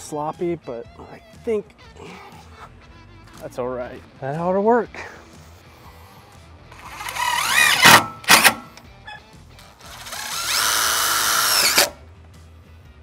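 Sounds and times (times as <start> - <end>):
cordless drill driving screws: 6.8 - 8.8, 9.6 - 12.0.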